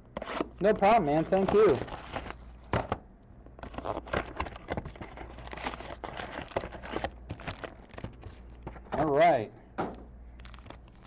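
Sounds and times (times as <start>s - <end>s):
packaging crinkling: 1.4s - 2.6s, 3.6s - 8.7s, 10.3s - 11.0s.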